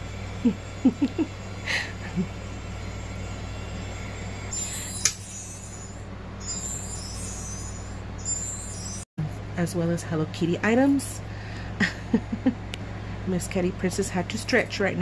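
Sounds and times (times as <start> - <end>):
steady low hum: 0.0 - 15.0
short squeaks: 4.6 - 9.0
sharp click: 5.0 - 5.3.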